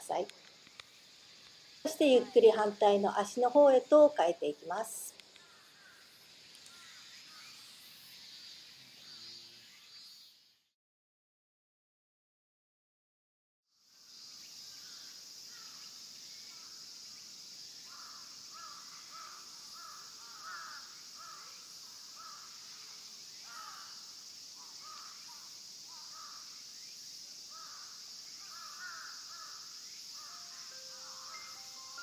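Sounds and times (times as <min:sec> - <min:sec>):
high insect buzz: 0:00.0 - 0:10.7, 0:13.8 - 0:32.0
crows cawing: 0:05.4 - 0:06.0, 0:06.7 - 0:07.0, 0:17.9 - 0:21.6, 0:22.2 - 0:22.6, 0:23.5 - 0:24.0, 0:24.6 - 0:26.4, 0:27.5 - 0:31.8.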